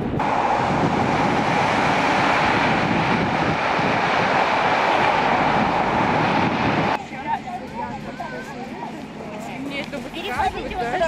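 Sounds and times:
snow-clearing trucks droning: 0.0 - 8.4.

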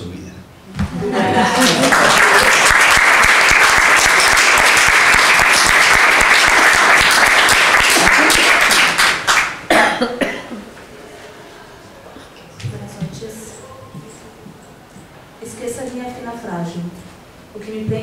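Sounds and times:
audience applauding: 1.1 - 9.7.

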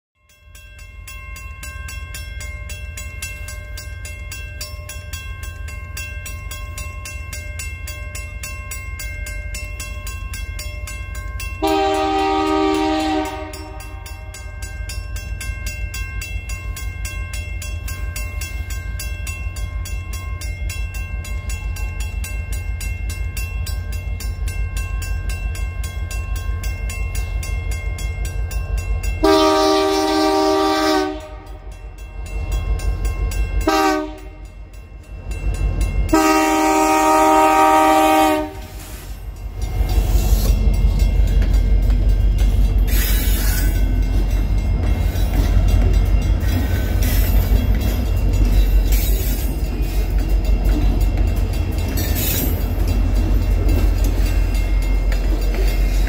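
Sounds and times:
railroad crossing bell ringing: 0.2 - 56.0
locomotive horn blast: 11.6 - 14.4, 29.2 - 31.7, 33.6 - 34.5, 36.1 - 38.9.

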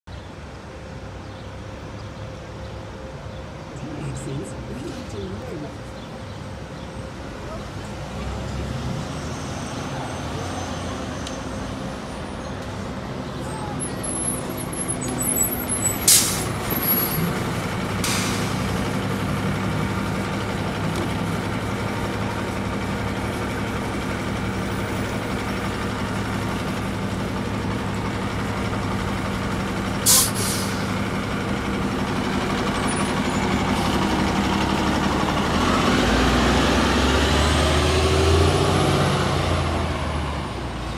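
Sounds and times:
bus engine idling: 0.1 - 40.9
air brake hisses: 18.0 - 18.6, 30.1 - 30.9.

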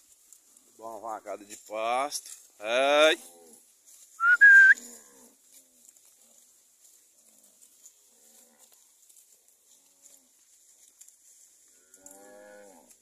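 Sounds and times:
two-note whistle: 4.2 - 4.8.

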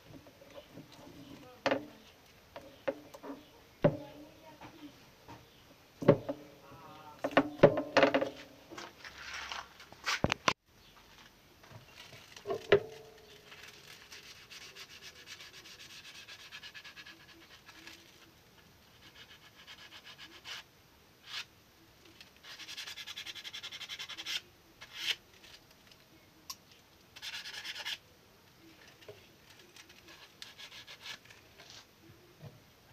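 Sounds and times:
rubbing and scraping: 7.2 - 10.4, 11.2 - 20.6.

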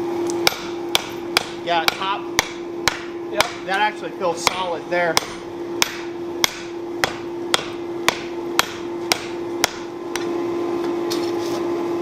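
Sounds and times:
steady hum: 0.0 - 12.0
hammer striking hot metal on anvil: 0.4 - 10.3.

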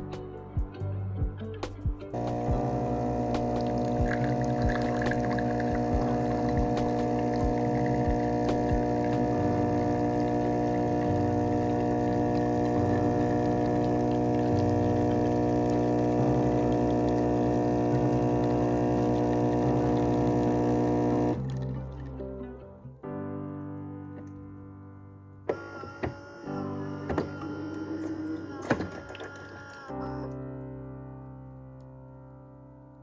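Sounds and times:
espresso machine pump humming: 2.2 - 21.6, 27.1 - 30.0.

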